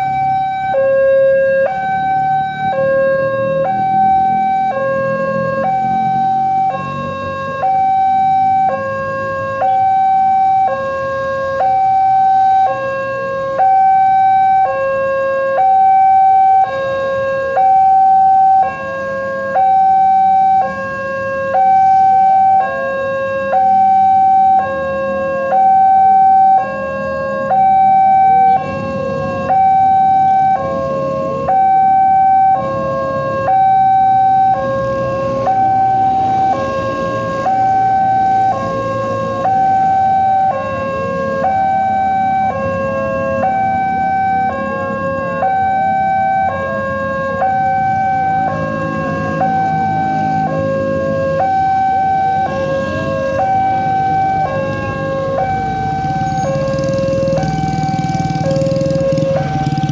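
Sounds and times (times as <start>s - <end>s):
level crossing two-tone alarm: 0.0s - 59.9s.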